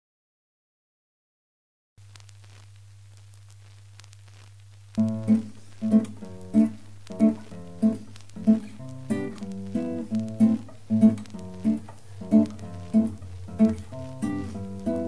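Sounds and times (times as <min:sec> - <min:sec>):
acoustic guitar strumming: 0:05.0 - 0:15.0.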